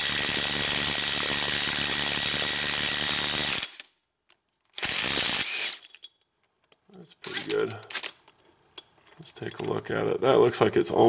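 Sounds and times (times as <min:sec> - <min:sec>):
impact wrench running: 0:00.0 - 0:03.8, 0:04.8 - 0:05.9.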